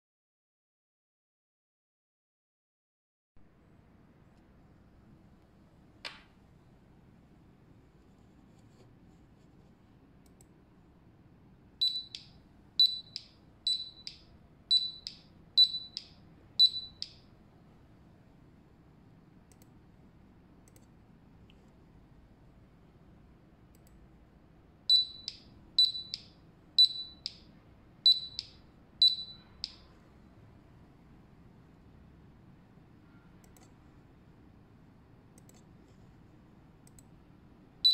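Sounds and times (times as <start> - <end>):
high-pitched alarm beeps: 11.8 - 17.3, 24.9 - 29.9.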